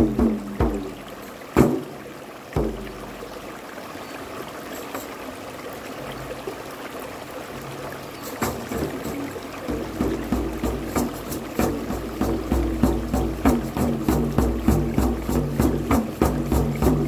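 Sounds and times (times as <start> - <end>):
frame drum hits: 0.0 - 2.0, 2.6 - 3.2, 8.4 - 17.0
water rushing over rocks: 0.0 - 17.0.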